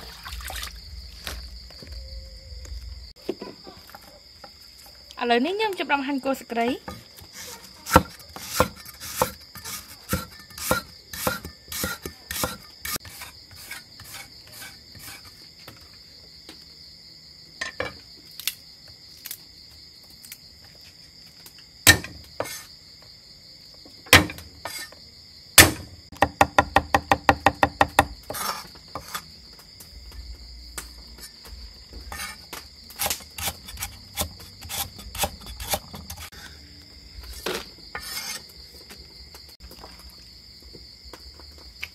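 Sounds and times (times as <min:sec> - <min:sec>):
night insects chirring: 0:00.0 - 0:41.9
cleaver chopping on wooden board: 0:06.8 - 0:13.2, 0:21.9 - 0:22.6, 0:24.1 - 0:24.8, 0:25.6 - 0:29.2, 0:32.1 - 0:36.3.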